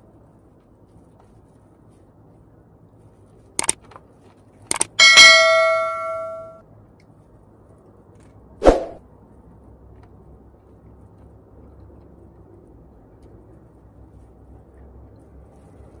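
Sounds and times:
hard object ringing clang: 0:04.7 - 0:06.6.

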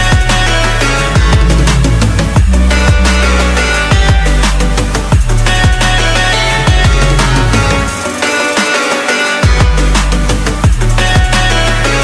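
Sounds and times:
electronic music with deep bass: 0:00.0 - 0:12.0
heavy kick drums dropping in pitch: 0:01.2 - 0:04.4.

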